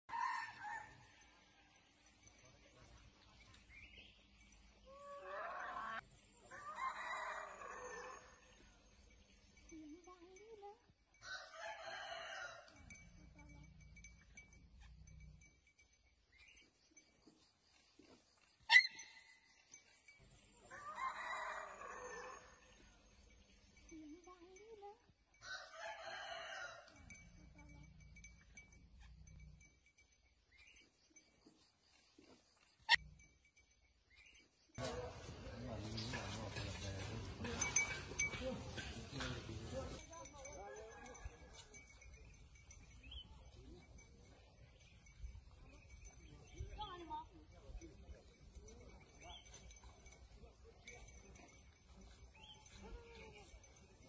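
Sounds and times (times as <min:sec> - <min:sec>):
rooster crowing: 0:00.1 - 0:01.1, 0:05.0 - 0:08.4, 0:11.2 - 0:12.8, 0:20.7 - 0:22.6, 0:25.4 - 0:27.0.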